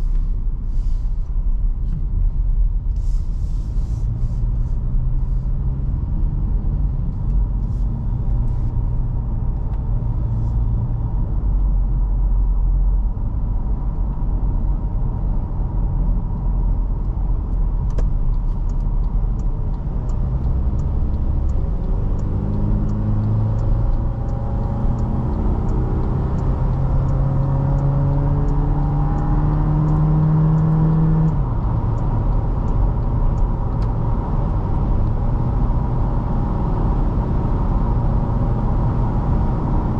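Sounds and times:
car engine accelerating: 0:02.9 - 0:39.9
faint regular ticking: 0:17.0 - 0:35.4.

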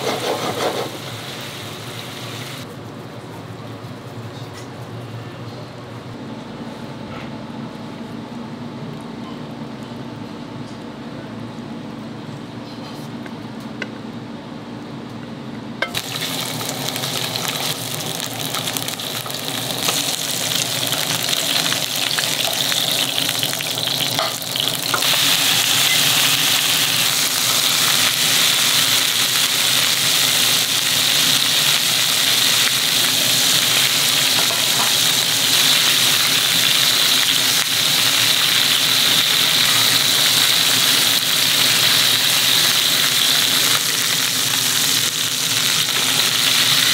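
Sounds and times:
steak sizzling: 0:15.9 - 0:46.9.

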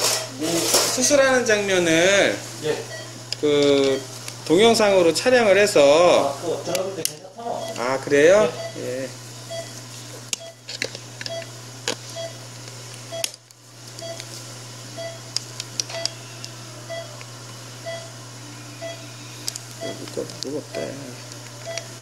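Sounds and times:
low equipment hum: 0:00.0 - 0:22.0
patient monitor beeping: 0:01.5 - 0:06.3, 0:07.4 - 0:09.8, 0:10.4 - 0:12.5, 0:13.1 - 0:13.4, 0:14.0 - 0:14.3, 0:14.9 - 0:22.0.

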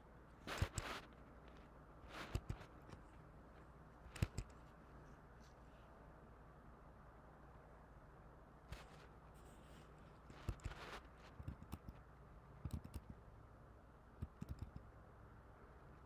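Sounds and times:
steady low hum: 0:00.0 - 0:16.0
keyboard taps and clicks: 0:10.4 - 0:12.0, 0:12.6 - 0:13.2, 0:14.2 - 0:14.9.

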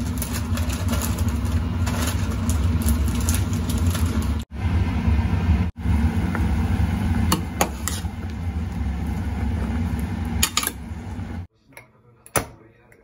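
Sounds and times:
low mechanical hum: 0:00.0 - 0:11.5.

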